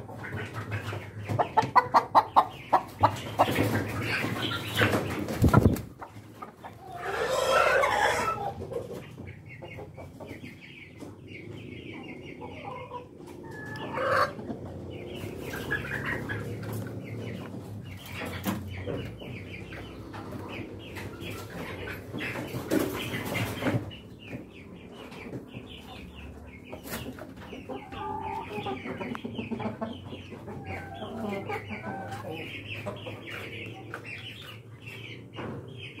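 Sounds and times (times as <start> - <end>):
hens clucking: 0.0 - 36.0
loud hen calls: 6.7 - 8.8, 12.5 - 14.6.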